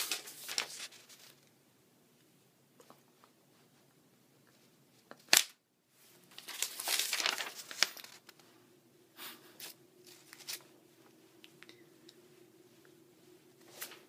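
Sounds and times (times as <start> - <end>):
paper rustling and crinkling: 0.0 - 1.5, 6.2 - 8.5, 9.6 - 10.8, 13.6 - 14.0
sharp paper snap: 5.1 - 5.6.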